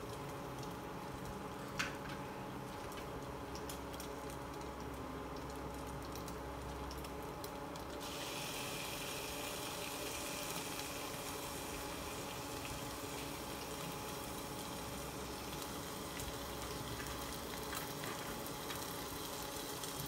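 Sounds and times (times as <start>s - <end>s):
onion frying with light crackling: 0.0s - 20.0s
chicken sizzling in pan: 6.3s - 20.0s.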